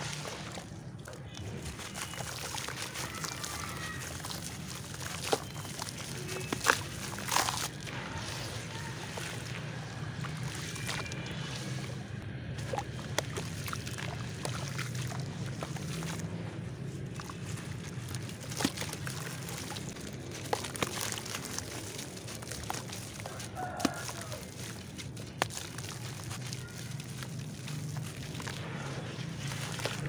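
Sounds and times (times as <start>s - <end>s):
water sloshing and splashing: 0.0s - 30.0s
clay chunks snapping and crunching: 1.1s - 11.5s, 17.1s - 30.0s.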